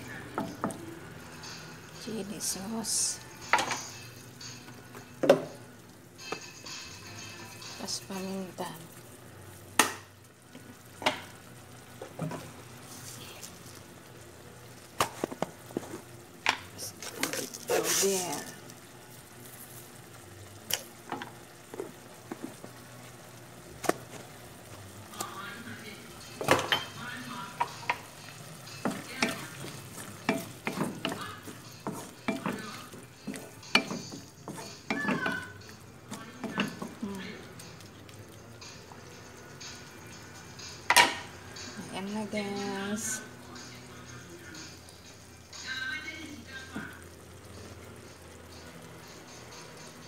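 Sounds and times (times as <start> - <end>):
food sizzling in a frying pan: 0.0 - 50.0
sauce bubbling: 4.0 - 41.8, 46.4 - 50.0
spatula scraping a wok: 16.8 - 18.5, 28.6 - 35.6.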